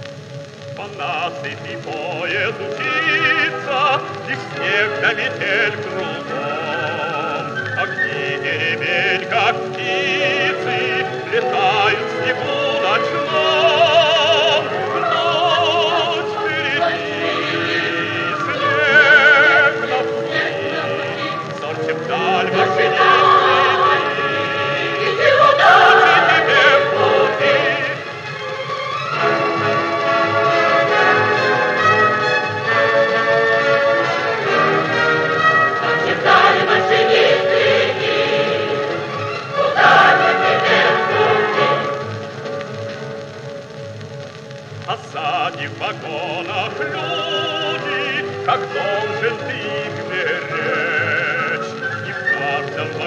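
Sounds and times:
record surface hiss: 0.0s - 53.0s
choir singing with vibrato: 1.0s - 42.5s, 45.0s - 53.0s
orchestra playing: 6.2s - 42.1s.

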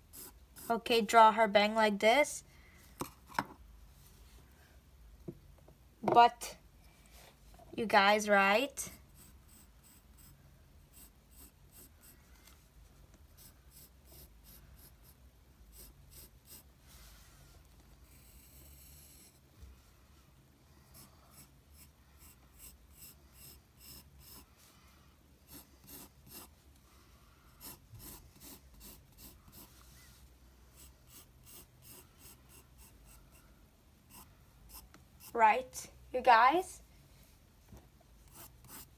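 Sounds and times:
pencil scratching on paper: 0.1s - 0.8s, 8.9s - 12.2s, 13.4s - 16.7s, 18.0s - 19.4s, 20.9s - 24.5s, 25.4s - 26.6s, 27.6s - 29.8s, 30.7s - 33.3s, 34.1s - 35.4s, 38.2s - 38.9s.

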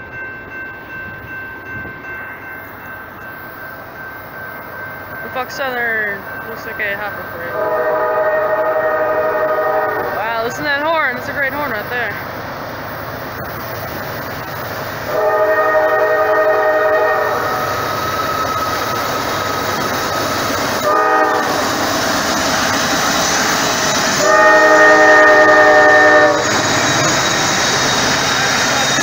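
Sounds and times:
train rumbling: 0.0s - 29.0s
locomotive horn blasts: 7.5s - 10.5s, 15.1s - 17.7s, 20.8s - 21.8s, 24.2s - 26.6s.

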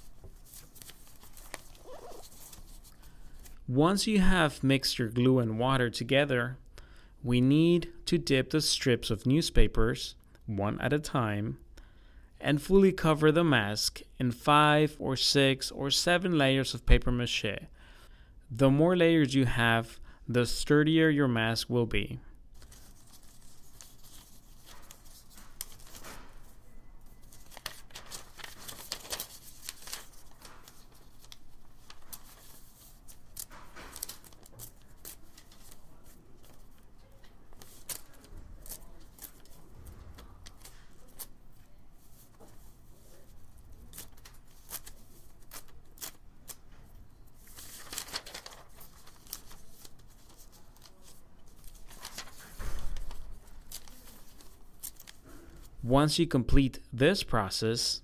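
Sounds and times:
wet paper rustling: 0.0s - 3.6s, 22.6s - 26.6s, 27.2s - 41.3s, 47.3s - 55.7s.

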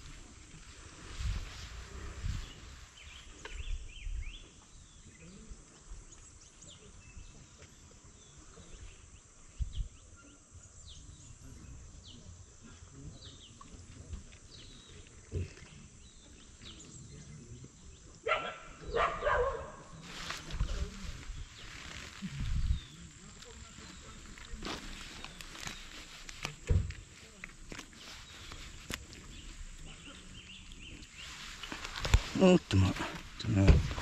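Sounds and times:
low thumps: 31.7s - 34.0s.

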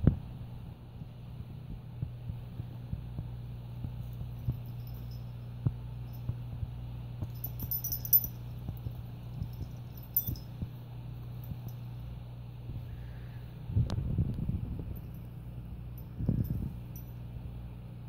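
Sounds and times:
steady low hum: 0.0s - 18.0s
collar tag jingle: 4.0s - 6.5s, 7.2s - 12.2s, 14.9s - 17.4s.

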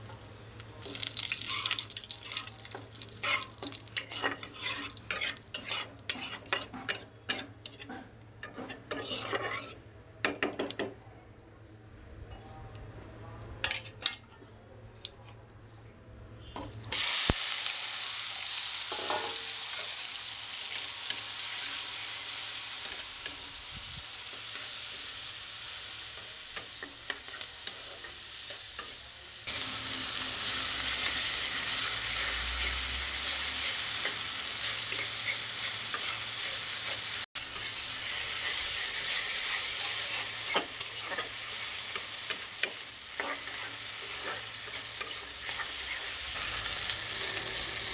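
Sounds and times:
vegetables sizzling in hot oil: 0.0s - 7.8s, 16.9s - 47.9s
spatula scraping a wok: 3.2s - 9.9s, 24.2s - 46.5s.

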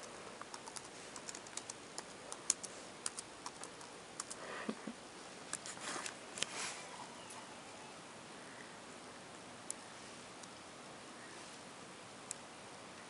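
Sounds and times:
laptop keyboard typing: 0.0s - 4.4s.

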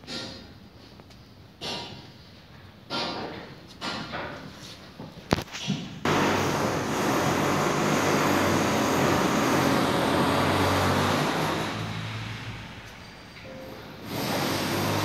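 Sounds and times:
loud mechanical rumble: 6.1s - 15.0s.

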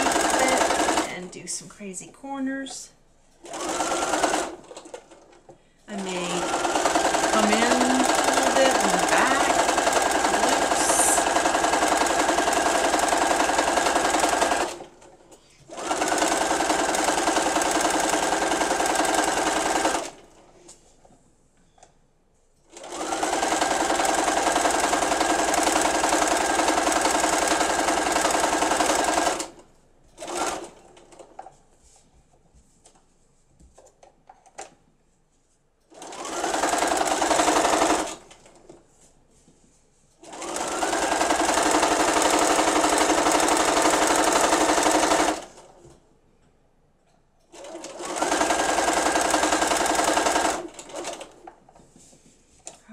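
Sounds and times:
sewing machine stitching: 0.0s - 1.3s, 3.4s - 20.5s, 22.7s - 29.6s, 30.2s - 31.5s, 35.9s - 38.8s, 40.2s - 45.9s, 47.5s - 51.8s.

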